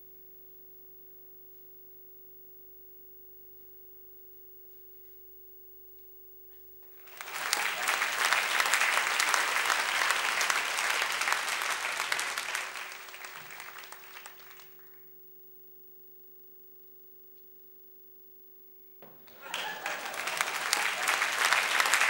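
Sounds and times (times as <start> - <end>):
audience applauding: 6.9 - 15.0, 19.2 - 22.0.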